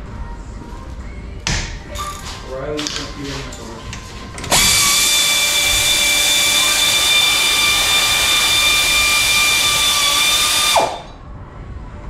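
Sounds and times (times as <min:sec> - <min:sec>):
pneumatic wrench running: 0:04.4 - 0:11.1.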